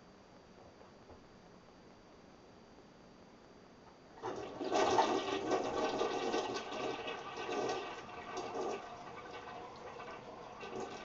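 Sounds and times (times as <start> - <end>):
toilet flushing: 4.2 - 11.0.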